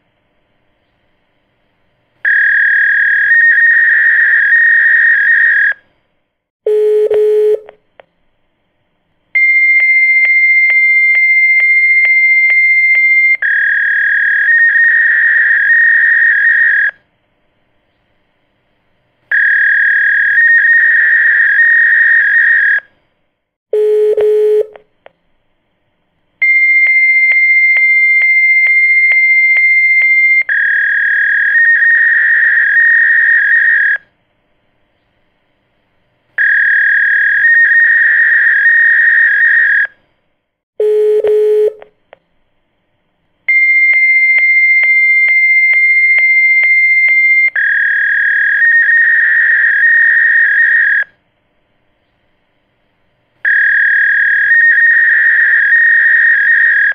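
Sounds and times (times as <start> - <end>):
warbling electronic telephone tones: 2.2 - 5.8, 9.4 - 17.0, 19.3 - 22.9, 26.4 - 34.1, 36.4 - 40.0, 43.5 - 51.2, 53.4 - 56.9.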